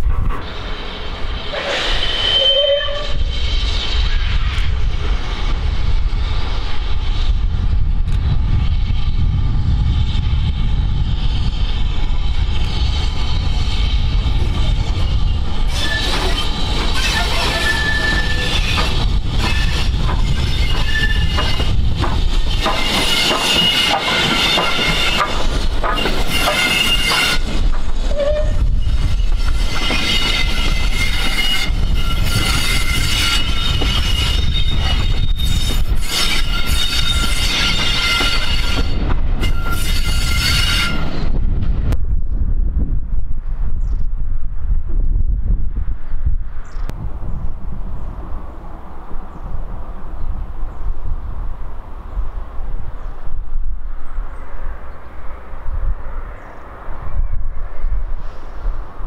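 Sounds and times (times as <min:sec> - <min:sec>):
train rumbling past: 0:00.0 - 0:43.5, 0:44.5 - 0:59.0
steel wheels squealing: 0:00.4 - 0:05.4, 0:11.1 - 0:41.4
wheels clicking over rail joints: 0:15.7 - 0:28.5.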